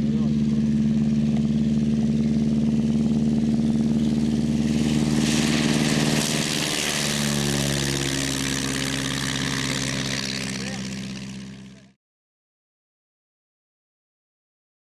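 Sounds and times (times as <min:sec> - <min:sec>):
propeller plane engine taxiing: 0:00.0 - 0:12.0
propeller wash hiss: 0:04.2 - 0:11.7.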